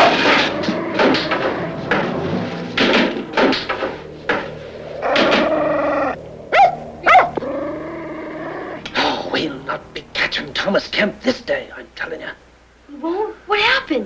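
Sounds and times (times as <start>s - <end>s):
small dog barking and yelping: 6.0s - 7.5s.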